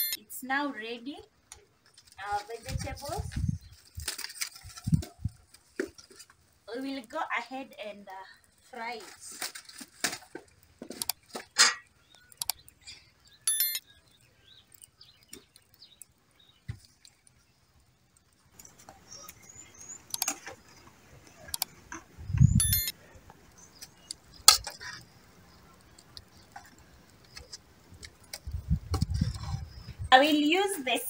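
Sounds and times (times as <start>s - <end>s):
birds chirping: 10.5s - 31.0s.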